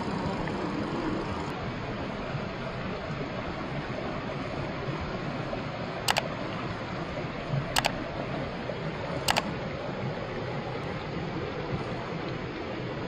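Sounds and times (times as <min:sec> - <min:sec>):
mouse double clicks: 0:07.8 - 0:08.0, 0:09.3 - 0:09.5.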